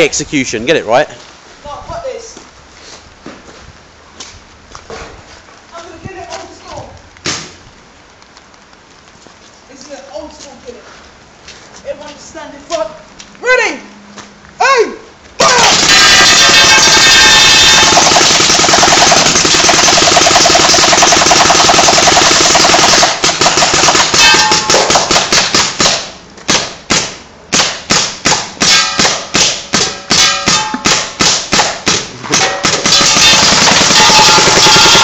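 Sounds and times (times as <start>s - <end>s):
paintball gun shots: 7.2s - 7.6s, 15.4s - 35.0s.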